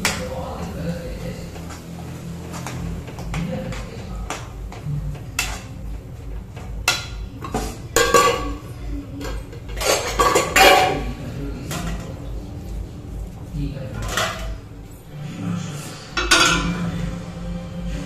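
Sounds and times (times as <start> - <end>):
metal utensils clattering: 5.1 - 12.4, 13.8 - 14.8, 16.1 - 16.9.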